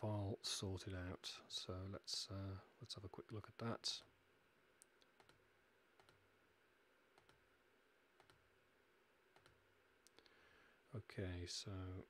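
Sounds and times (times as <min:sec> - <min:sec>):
computer mouse clicks: 0:04.8 - 0:05.4, 0:06.0 - 0:06.2, 0:07.2 - 0:07.4, 0:08.2 - 0:08.4, 0:09.3 - 0:10.2.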